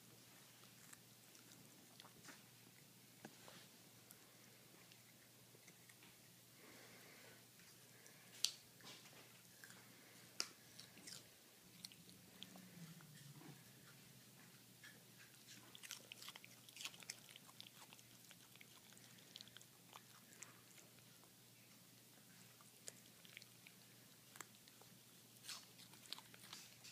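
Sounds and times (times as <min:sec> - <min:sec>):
dog crunching carrot: 0:08.4 - 0:26.9.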